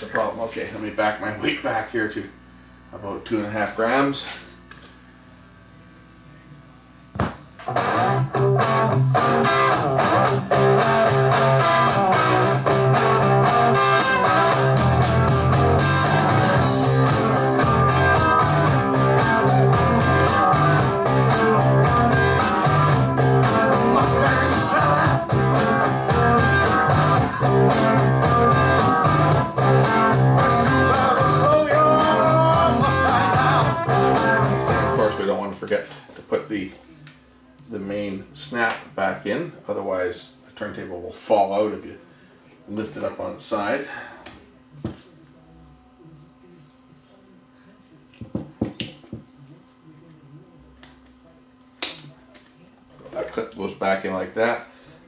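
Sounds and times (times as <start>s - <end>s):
guitar rock and roll music: 7.2s - 35.4s.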